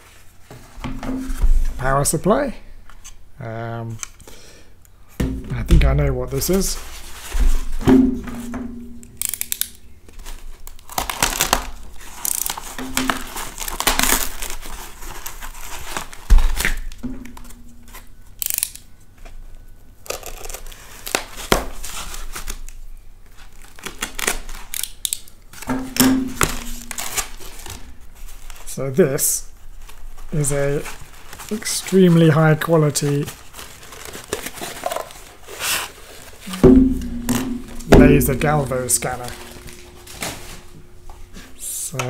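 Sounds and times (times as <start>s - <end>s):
foam and tape crinkling: 5.5s - 7.8s, 9.1s - 42.0s
thump: 36.6s - 38.4s.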